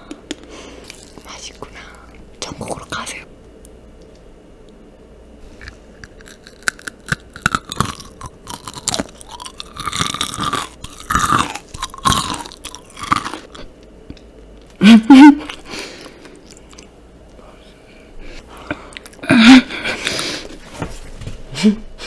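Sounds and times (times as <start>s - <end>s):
crunching and chewing candy: 0.6s - 2.0s, 5.5s - 14.8s, 15.4s - 16.9s
person laughing: 14.8s - 15.7s, 19.2s - 20.5s, 21.5s - 22.0s.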